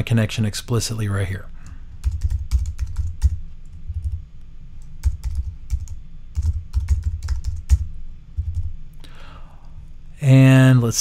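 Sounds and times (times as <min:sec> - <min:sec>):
computer keyboard typing: 0:01.9 - 0:04.2, 0:04.8 - 0:08.8.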